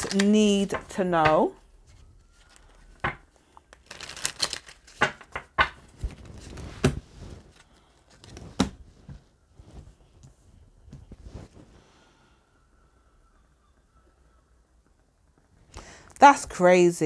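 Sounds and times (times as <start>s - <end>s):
cards shuffled by hand: 0.0s - 0.9s, 1.9s - 8.9s.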